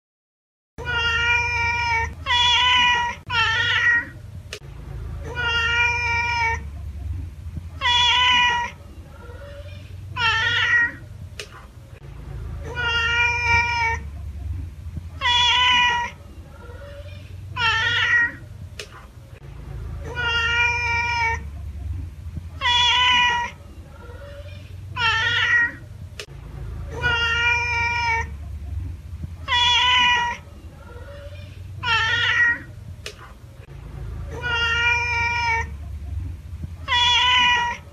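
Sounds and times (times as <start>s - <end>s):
cat meowing: 0.8s - 4.2s, 5.2s - 6.7s, 7.8s - 11.0s, 12.6s - 14.1s, 15.2s - 18.4s, 20.0s - 21.5s, 22.6s - 25.9s, 26.9s - 28.3s, 29.4s - 32.7s, 34.3s - 35.7s, 36.8s - 37.9s
low steady hum: 0.8s - 37.9s
steady low rumble: 1.0s - 37.9s.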